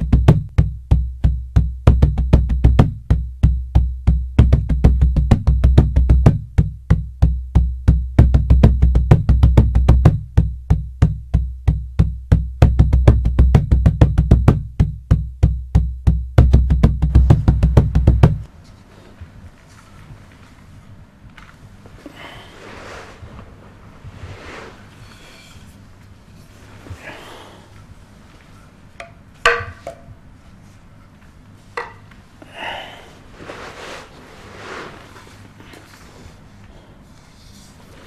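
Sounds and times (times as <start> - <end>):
deep booming drum rhythm: 0.0 - 18.5.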